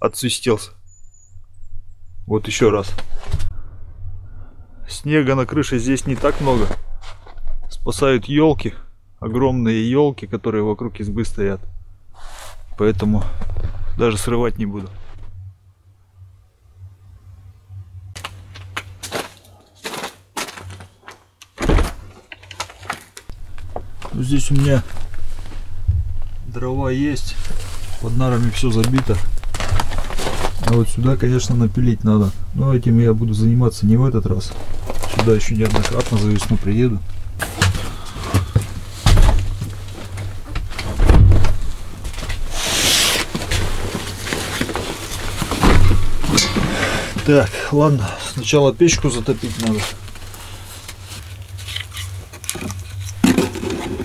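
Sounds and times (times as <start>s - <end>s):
footsteps crunching in snow: 18.2s - 21.3s
heavy low thump: 25.7s - 26.8s, 38.4s - 39.8s, 40.5s - 41.8s, 45.6s - 46.8s
door shutting: 40.5s - 41.6s, 45.5s - 46.9s
backpack and jacket rustling: 42.4s - 47.2s.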